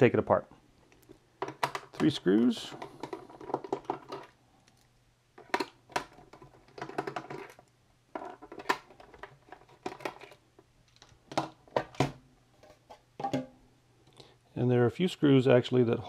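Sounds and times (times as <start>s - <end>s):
plastic shell clicks and knocks: 1.4s - 2.1s.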